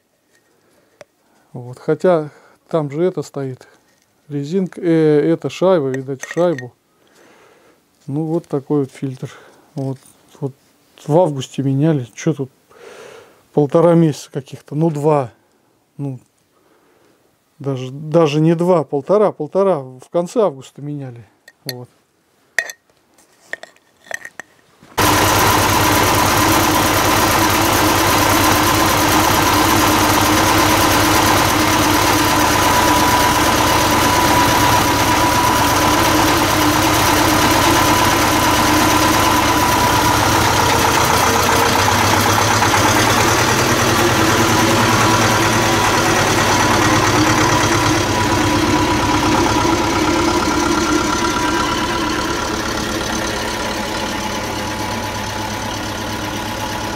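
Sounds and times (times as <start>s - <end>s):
tractor diesel engine running: 25.0s - 56.9s.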